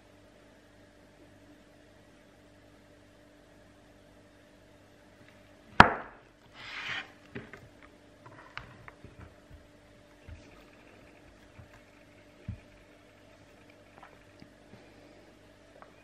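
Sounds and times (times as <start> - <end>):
scraping hiss: 6.5 - 7.2.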